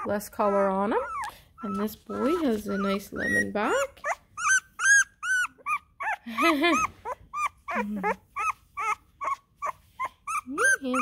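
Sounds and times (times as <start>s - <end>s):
puppies squealing: 0.0s - 11.0s
puppy trilling cry: 0.0s - 11.0s.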